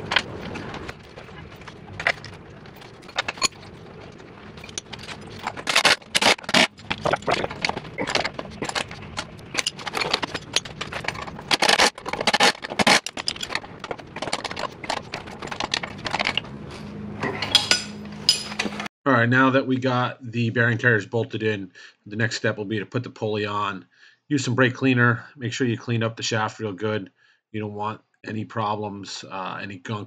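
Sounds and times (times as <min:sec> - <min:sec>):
metallic clicks and clinks: 0:04.6 - 0:16.4, 0:17.2 - 0:18.9.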